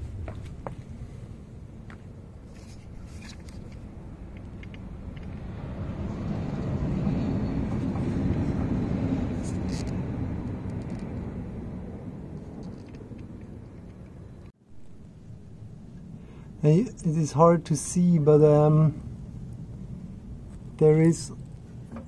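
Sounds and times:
vehicle road noise passing: 0.0s - 14.5s.

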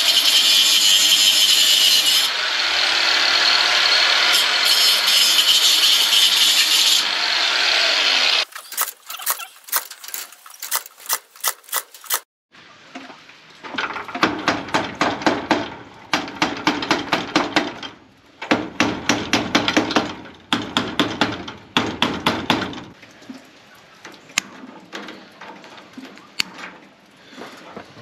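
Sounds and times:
sharp clicks: 8.5s - 12.3s.

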